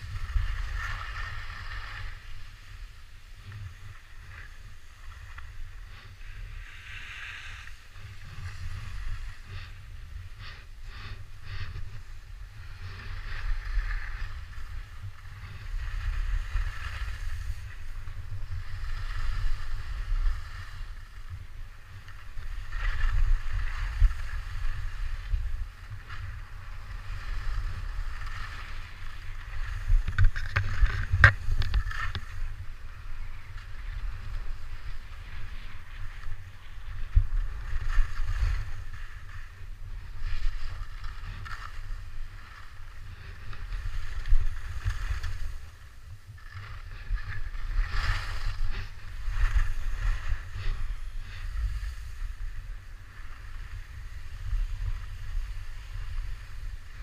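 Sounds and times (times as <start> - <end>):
skis scraping over snow: 0.0 - 57.0
wind buffeting microphone: 22.5 - 57.0.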